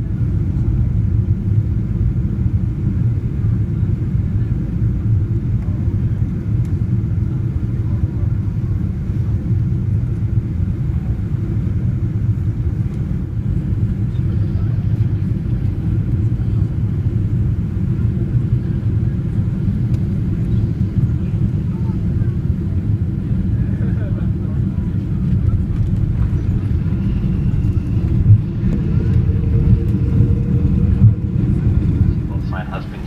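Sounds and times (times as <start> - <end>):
aircraft engines rumbling: 0.0 - 33.0
air rushing past wing: 25.2 - 33.0.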